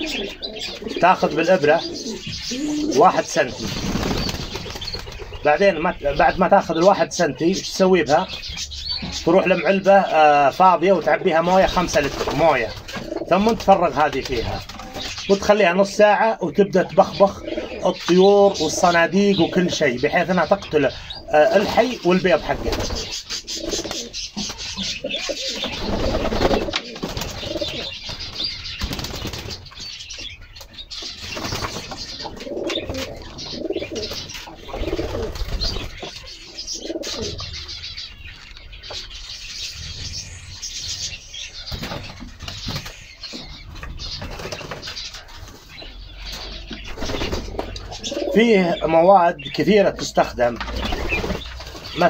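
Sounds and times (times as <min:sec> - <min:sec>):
pigeons cooing: 0:00.0 - 0:52.0
wings flapping: 0:02.4 - 0:05.5, 0:11.5 - 0:15.4, 0:21.4 - 0:30.0, 0:31.0 - 0:36.3, 0:41.6 - 0:45.8, 0:46.8 - 0:47.8, 0:50.6 - 0:52.0.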